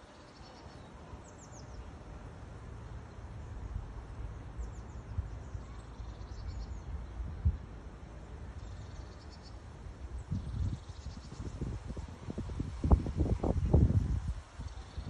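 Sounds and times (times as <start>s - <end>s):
wind rumble on microphone: 3.4s - 15.0s
small birds chirping: 4.4s - 7.3s.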